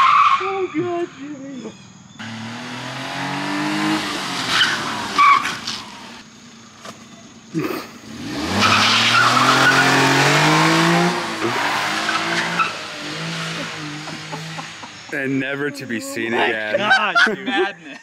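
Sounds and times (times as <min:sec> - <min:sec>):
small truck engine revving: 0:02.2 - 0:06.3, 0:07.5 - 0:15.2.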